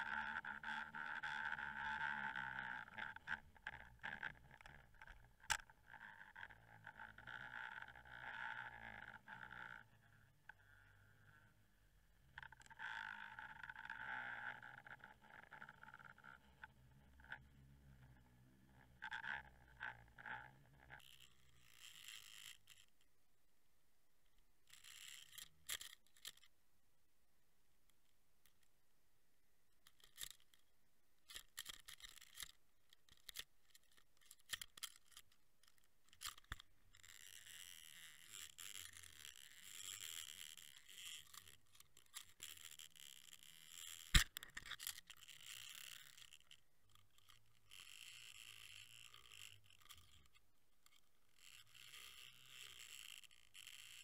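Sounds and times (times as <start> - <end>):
camera rig clicks and knocks: 44.1 - 45.0.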